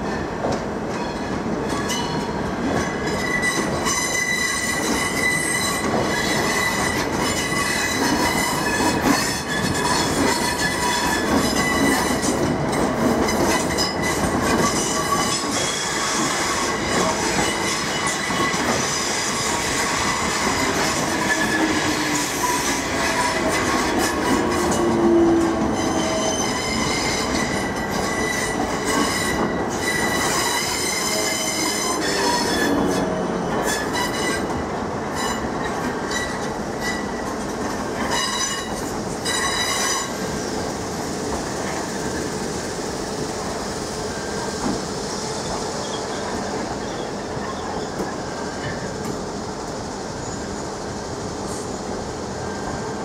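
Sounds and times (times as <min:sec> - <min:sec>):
train running noise: 0:00.0 - 0:53.0
train wheels squealing: 0:03.0 - 0:34.5, 0:35.1 - 0:37.4, 0:38.0 - 0:40.3, 0:45.2 - 0:48.9, 0:50.2 - 0:50.7.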